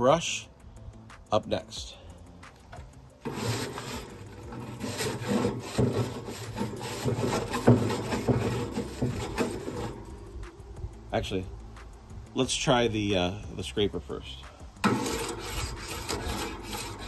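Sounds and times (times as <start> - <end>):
grill brush scrubbing grates: 3.2 - 10.4, 14.8 - 17.0.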